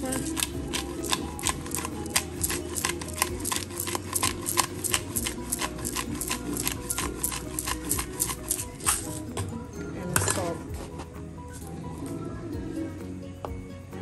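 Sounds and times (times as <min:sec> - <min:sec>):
pepper grinder ratcheting clicks: 0:00.1 - 0:09.2.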